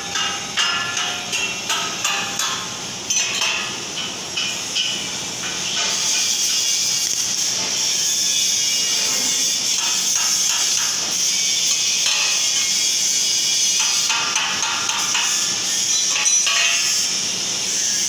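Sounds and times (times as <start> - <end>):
metal strikes ringing: 0.0 - 5.0
welding arc hissing and crackling: 0.0 - 18.0.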